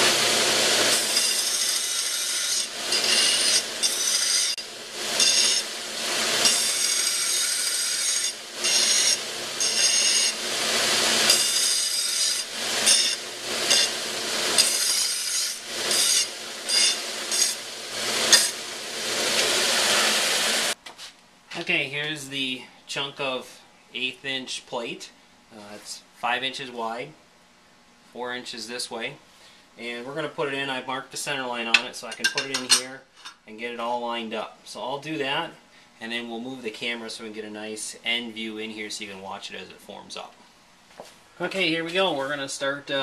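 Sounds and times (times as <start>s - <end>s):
belt sander grinding steel: 0.0s - 20.8s.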